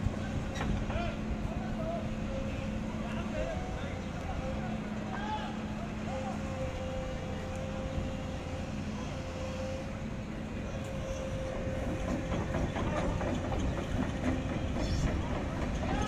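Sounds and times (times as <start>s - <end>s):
excavator engine drone: 0.0s - 16.0s.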